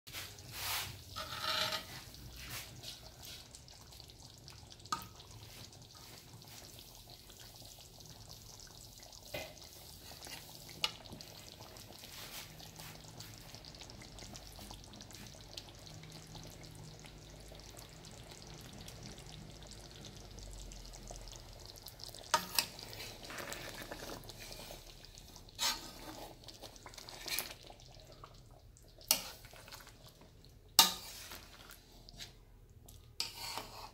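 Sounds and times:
curry sizzling in a pot: 0:00.1 - 0:33.9
metal ladle scraping pot: 0:00.5 - 0:02.5, 0:22.2 - 0:24.9, 0:25.5 - 0:27.7, 0:29.1 - 0:30.0, 0:30.8 - 0:31.8, 0:33.2 - 0:33.9.

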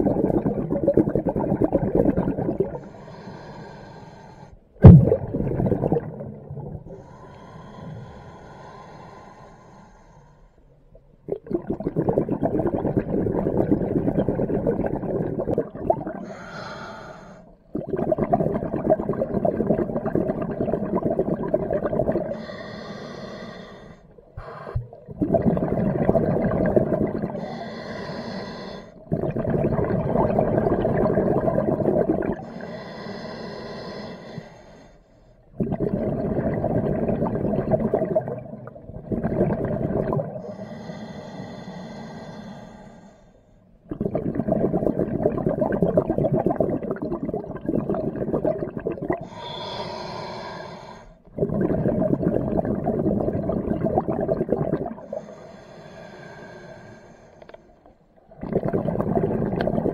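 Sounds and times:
bubbling exhalations underwater: 0:00.0 - 0:03.0, 0:04.8 - 0:07.2, 0:11.2 - 0:16.8, 0:17.6 - 0:22.6, 0:24.4 - 0:27.9, 0:29.0 - 0:32.8, 0:35.5 - 0:40.8, 0:43.8 - 0:49.8, 0:51.2 - 0:55.3, 0:58.2 - 0:59.9
hissing regulator inhalations: 0:02.8 - 0:04.6, 0:06.9 - 0:10.7, 0:16.2 - 0:17.6, 0:22.2 - 0:25.6, 0:26.8 - 0:29.2, 0:31.7 - 0:35.4, 0:40.1 - 0:43.7, 0:49.2 - 0:51.3, 0:54.8 - 0:59.9.

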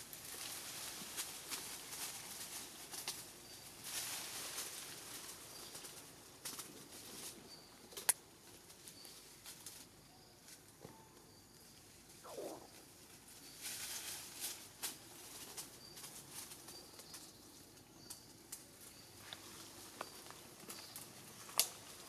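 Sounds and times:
soft rustling and crackling: 0:00.0 - 0:22.0
faint short high chirps: 0:12.2 - 0:12.8.

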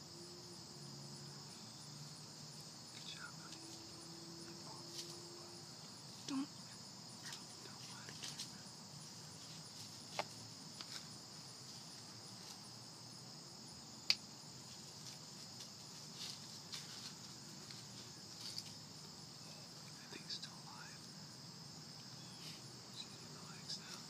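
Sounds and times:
insects trilling: 0:00.0 - 0:24.0.

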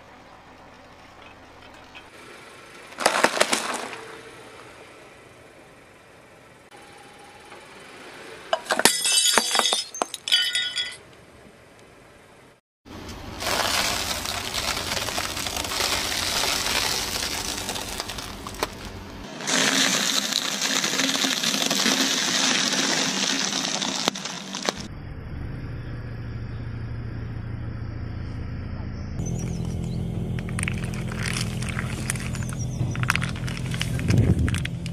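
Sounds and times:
tyre crushing wrapped crackers: 0:03.0 - 0:04.1, 0:13.3 - 0:24.9, 0:30.4 - 0:34.9
plastic capsules cracking under tyre: 0:13.4 - 0:24.8, 0:30.4 - 0:34.9.

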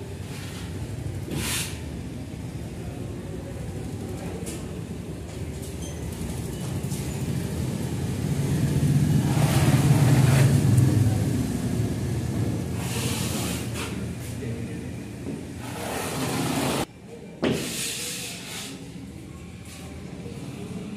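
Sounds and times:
road vehicle passing: 0:06.3 - 0:14.7.

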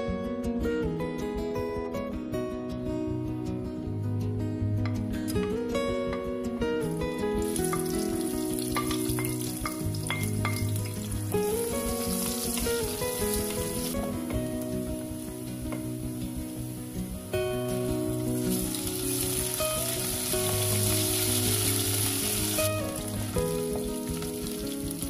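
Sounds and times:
background music: 0:00.0 - 0:25.0
onion sizzling in oil: 0:07.3 - 0:25.0.

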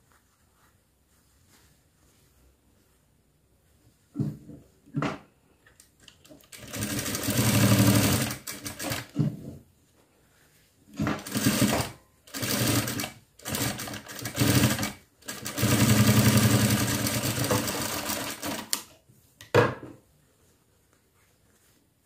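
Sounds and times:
sewing machine stitching: 0:06.3 - 0:09.2, 0:11.2 - 0:18.8.

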